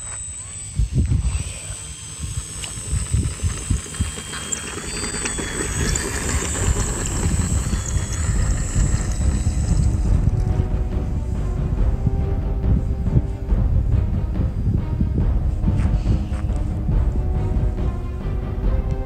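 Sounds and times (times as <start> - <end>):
faint high-pitched whine: 0.0 - 11.2
wind buffeting microphone: 0.5 - 19.0.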